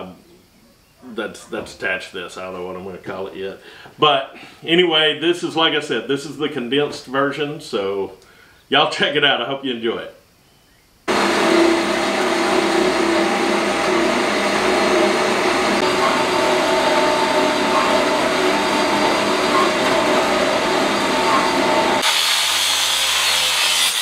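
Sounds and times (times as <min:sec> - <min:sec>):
angle grinder on steel: 0:11.1 - 0:24.0
band saw cutting steel pipe: 0:11.1 - 0:24.0.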